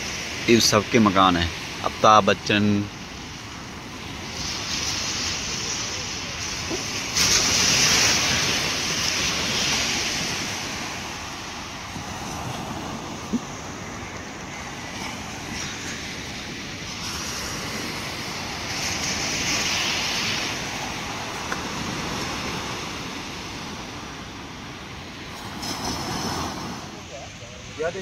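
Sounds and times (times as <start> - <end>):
surf breaking on shore: 0.0 - 28.0
wind on microphone: 2.9 - 28.0.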